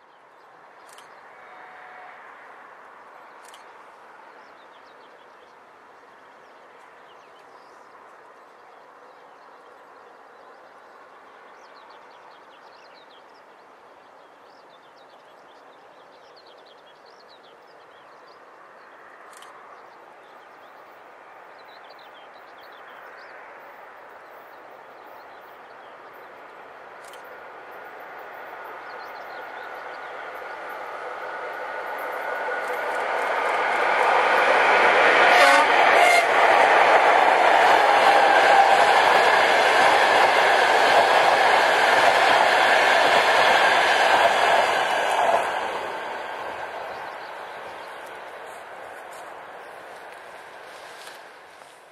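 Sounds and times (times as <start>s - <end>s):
approaching train rumble: 18.5s - 51.9s
locomotive whine: 28.3s - 51.2s.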